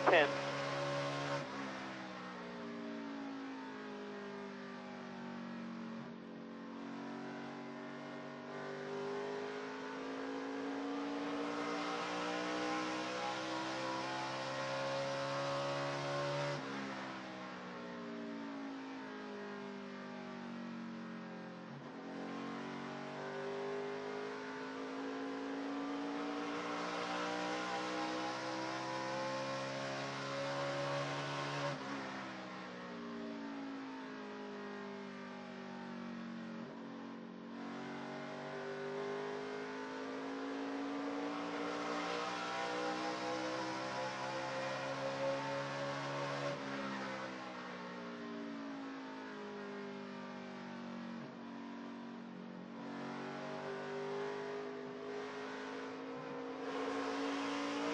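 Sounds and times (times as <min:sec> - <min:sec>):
race truck engine at full throttle: 0:24.5 - 0:31.7.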